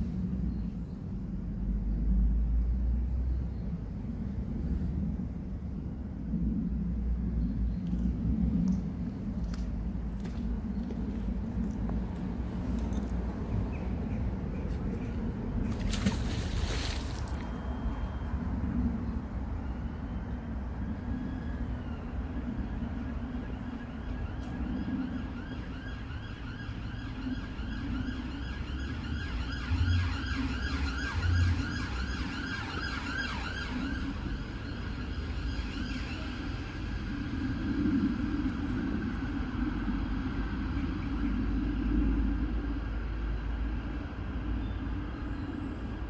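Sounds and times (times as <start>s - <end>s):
traffic rumble: 0.0s - 46.0s
distant siren wailing: 16.2s - 46.0s.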